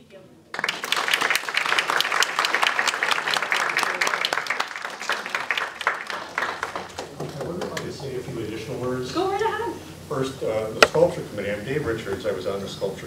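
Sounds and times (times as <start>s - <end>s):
audience applauding: 0.5s - 8.2s.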